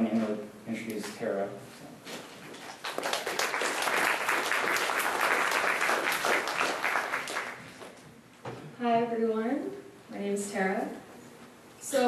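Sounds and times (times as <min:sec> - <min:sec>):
audience applause: 0:02.7 - 0:07.9.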